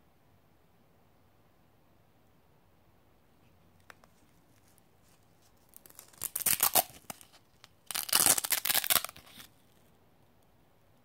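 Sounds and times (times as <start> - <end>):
hook-and-loop ripping: 4.6 - 9.6.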